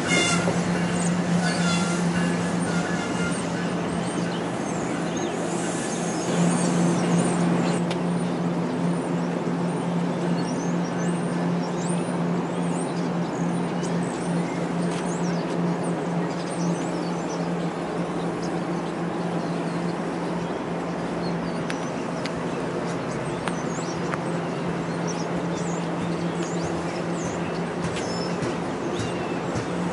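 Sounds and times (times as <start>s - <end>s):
short high squeaks: 0.0s - 3.8s
train wheels rumbling: 0.0s - 10.1s, 13.1s - 29.9s
train low hum: 0.0s - 29.9s.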